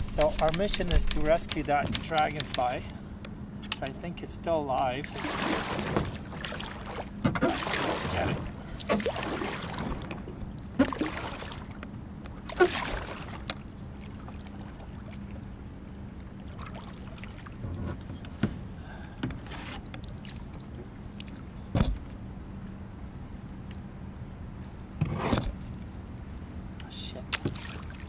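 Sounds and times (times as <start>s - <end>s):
sharp paddle sounds: 0.0s - 2.9s, 5.0s - 10.2s, 10.8s - 11.8s, 12.5s - 13.5s, 27.3s - 28.0s
water lapping at plastic hull: 0.0s - 3.0s, 4.8s - 23.1s, 24.9s - 28.0s
paddle stroking through water: 5.0s - 22.2s, 25.0s - 26.0s, 27.4s - 28.0s.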